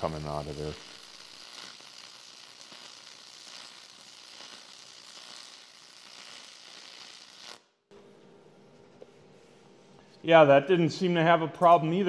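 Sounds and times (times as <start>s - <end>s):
welding arc crackling: 0.0s - 7.8s.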